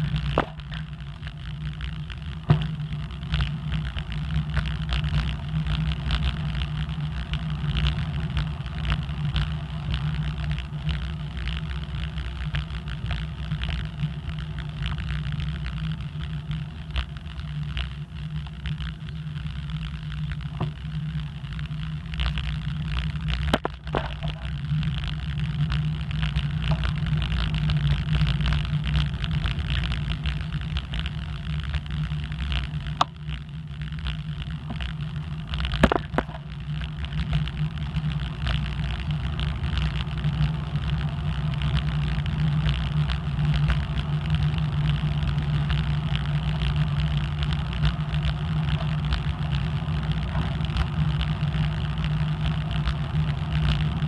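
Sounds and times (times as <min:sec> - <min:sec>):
bicycle tyre and road noise: 0:00.0 - 0:54.0.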